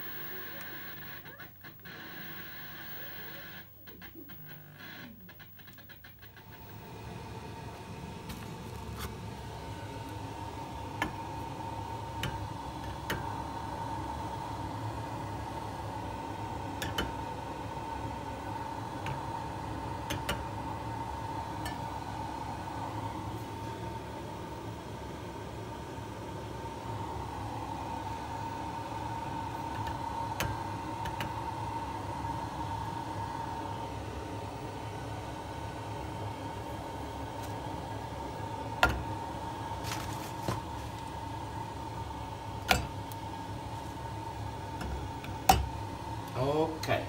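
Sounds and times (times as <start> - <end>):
steady hiss and low rumble: 0.0 - 16.7
faint steady whine: 0.0 - 47.0
gas burner flame hissing: 0.0 - 47.0.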